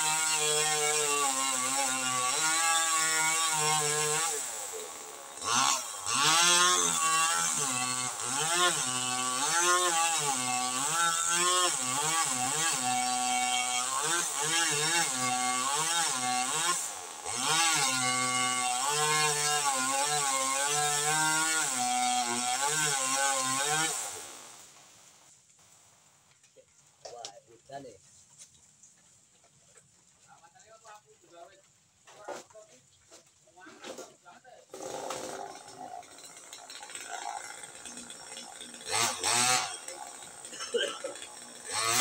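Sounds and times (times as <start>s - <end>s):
chainsaw cutting wood: 0.0s - 25.0s, 33.8s - 42.0s.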